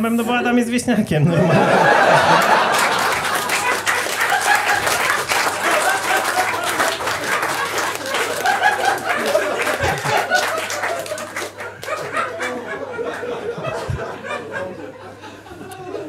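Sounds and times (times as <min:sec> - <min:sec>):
audience laughing: 0:01.2 - 0:16.0
audience applauding: 0:01.7 - 0:13.6.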